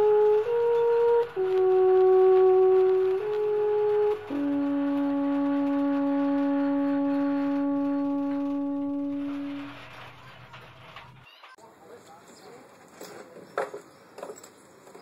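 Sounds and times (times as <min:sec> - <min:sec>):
wind instrument long note: 0:00.0 - 0:10.2.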